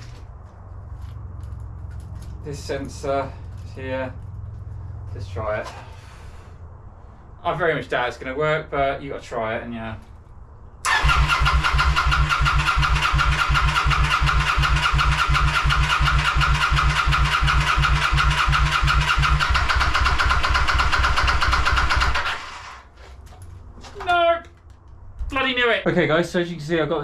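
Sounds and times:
motorcycle engine cranking: 10.8s - 22.8s.

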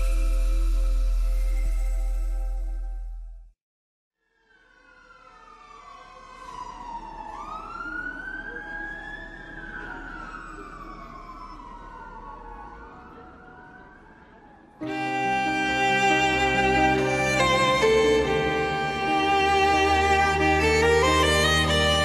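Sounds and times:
siren wailing: 4.3s - 14.2s.

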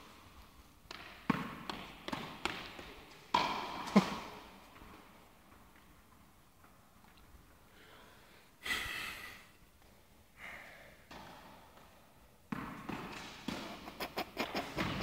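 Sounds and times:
tennis ball hits echoing: 0.9s - 4.5s.

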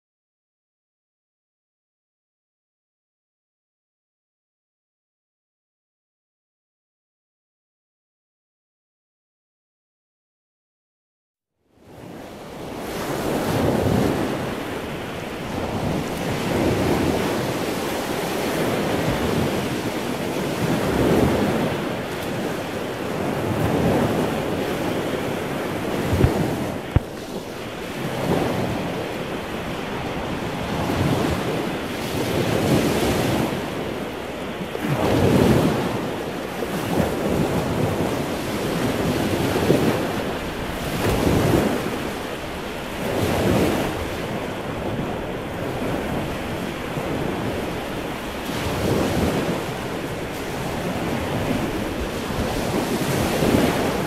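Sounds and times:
sea waves washing on beach: 11.8s - 54.0s
wind buffeting microphone: 11.8s - 54.0s.

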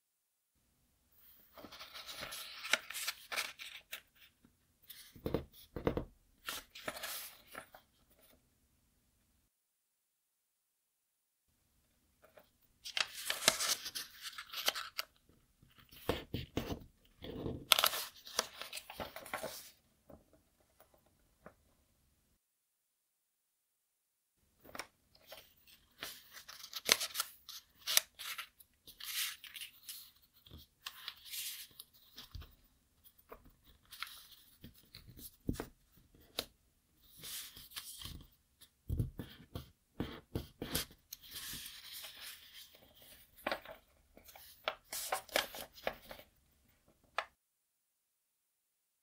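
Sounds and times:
paper rustling and crackling: 1.6s - 4.3s, 6.4s - 7.8s, 12.8s - 15.2s, 15.8s - 19.8s, 24.7s - 38.3s, 40.4s - 46.3s.

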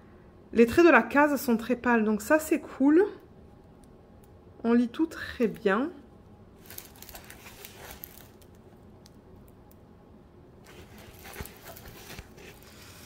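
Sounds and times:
canvas and plastic film rustling: 6.6s - 8.6s, 10.6s - 13.0s.

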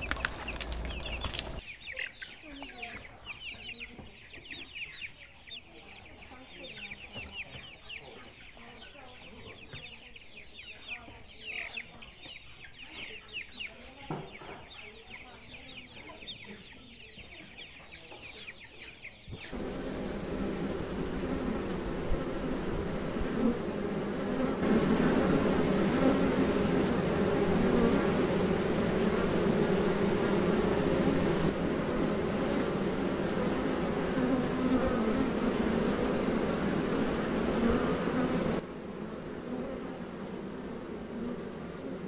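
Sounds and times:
honeybees buzzing: 0.0s - 1.8s, 19.5s - 42.0s.

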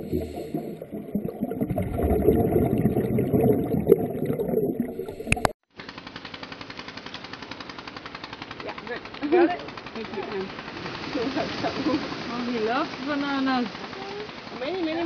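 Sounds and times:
underwater regulator bubbles: 0.0s - 5.6s
pulsing mechanical rattle: 5.8s - 15.0s.

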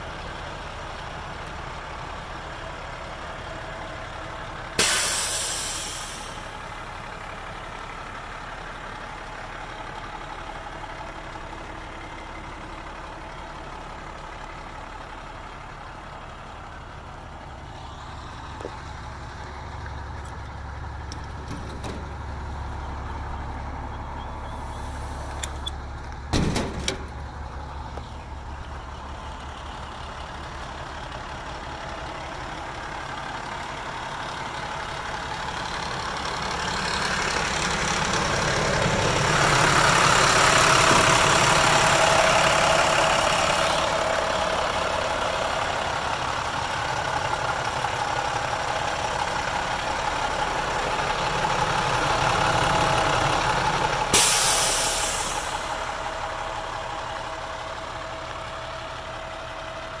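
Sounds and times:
diesel engine idling: 0.0s - 60.0s
compressed air hiss: 4.8s - 6.5s, 54.2s - 55.7s.

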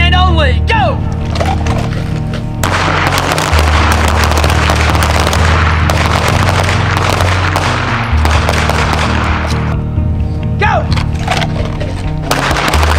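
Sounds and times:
background music with bass: 0.0s - 12.9s
pistol shots crackling: 2.6s - 9.8s, 12.2s - 12.9s.

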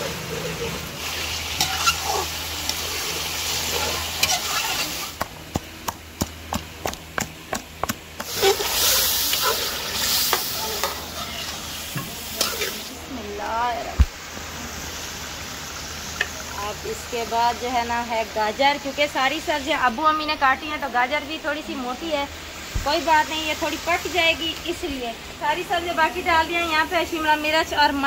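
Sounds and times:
chicken and onions sizzling: 0.0s - 28.0s
metal spatula scraping pan: 1.6s - 3.0s, 3.7s - 5.1s
wooden pestle knocking in mortar: 5.2s - 8.3s.

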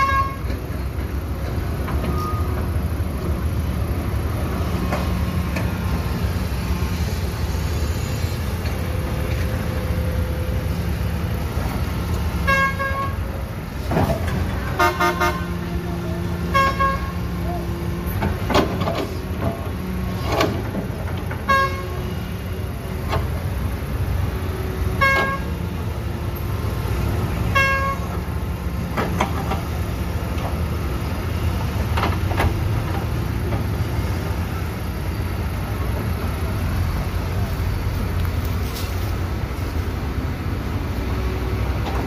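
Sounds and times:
vehicle horn toots: 0.0s - 0.5s, 12.4s - 13.2s, 14.8s - 15.6s, 16.5s - 17.2s, 21.4s - 22.0s, 25.0s - 25.5s, 27.5s - 28.1s
heavy diesel engines rumbling: 0.0s - 42.0s.

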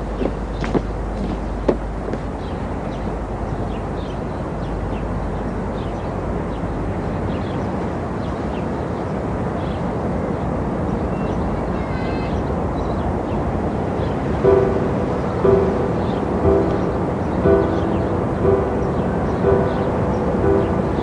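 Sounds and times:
distant traffic: 0.0s - 21.0s
faint bird chirps: 11.0s - 13.4s.

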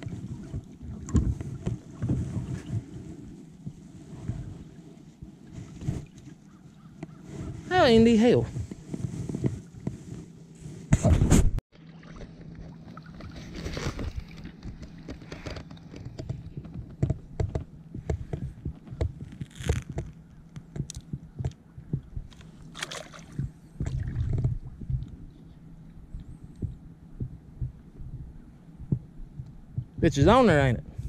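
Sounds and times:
water sloshing and splashing: 0.0s - 10.5s, 11.7s - 25.2s.

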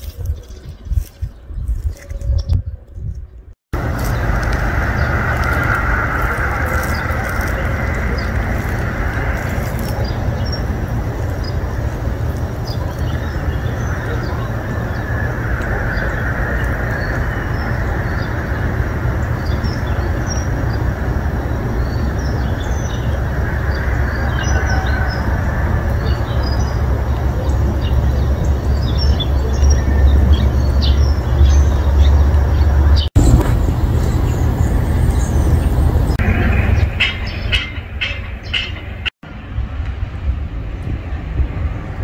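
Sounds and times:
small birds chirping: 0.0s - 39.1s
low outdoor rumble: 3.0s - 42.0s.

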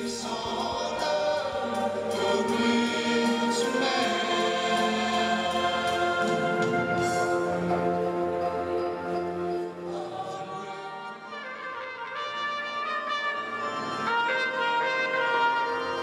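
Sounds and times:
mixed choir singing held chords: 0.0s - 12.4s.

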